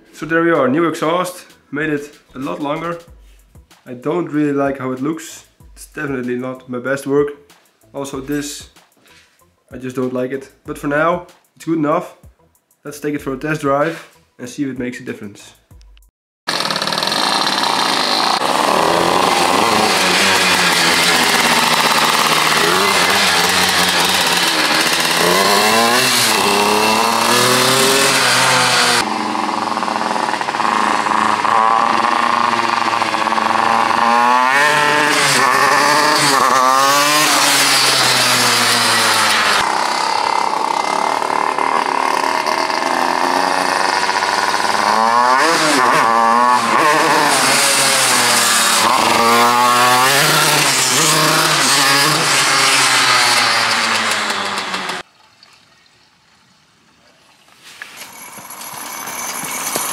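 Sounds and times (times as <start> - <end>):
two-stroke engine revving: 16.5 - 55.1, 58.1 - 59.9.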